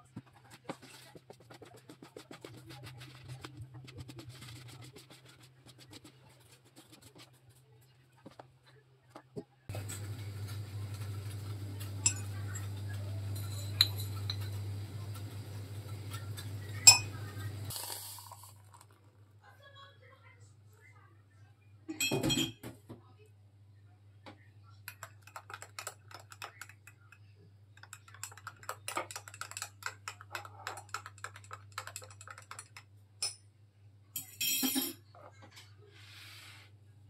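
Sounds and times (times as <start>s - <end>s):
wire whisk beating batter: 0.0s - 8.7s, 24.9s - 32.9s
spoon clinking against mug: 12.0s - 12.7s, 13.3s - 14.6s, 16.8s - 17.2s, 24.9s - 27.2s, 27.8s - 33.4s
water pouring into mug: 17.7s - 19.0s.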